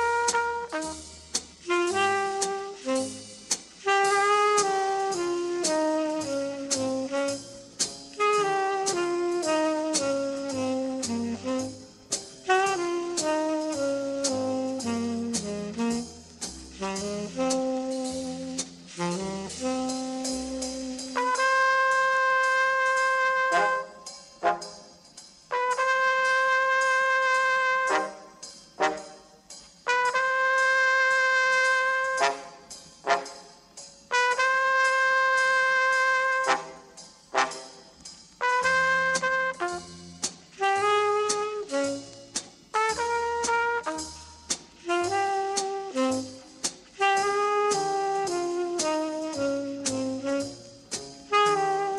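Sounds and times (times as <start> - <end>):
brass section playing chords: 0.0 - 16.2, 16.8 - 24.8, 25.5 - 42.2, 42.8 - 51.9
walking bass line: 0.0 - 22.8, 38.4 - 51.9
drum kit hits: 0.0 - 24.9, 25.5 - 51.9
cymbal strokes: 0.0 - 51.9
saxophone melody: 1.6 - 24.6, 38.4 - 51.9.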